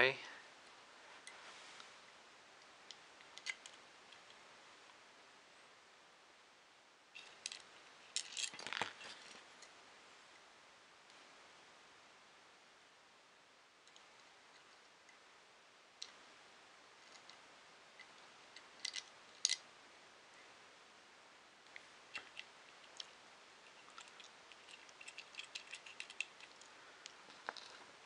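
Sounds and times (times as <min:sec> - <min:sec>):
small plastic parts clicking: 0:18.0 - 0:19.6, 0:23.7 - 0:27.8.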